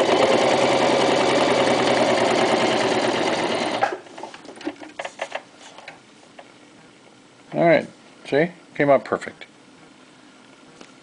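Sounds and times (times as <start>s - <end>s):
sewing machine stitching: 0.0s - 4.0s.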